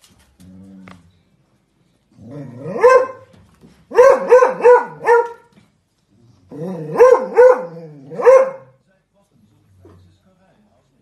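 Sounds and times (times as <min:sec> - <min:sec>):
dog barking: 0:02.6 - 0:03.3, 0:03.9 - 0:05.5, 0:06.8 - 0:08.8.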